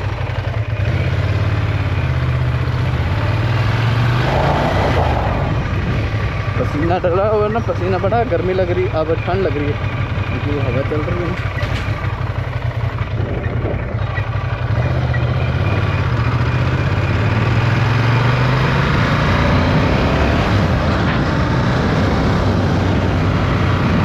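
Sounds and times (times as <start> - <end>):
motorcycle engine running: 0.0 - 24.0
wind rushing over microphone: 4.2 - 7.2, 19.4 - 24.0.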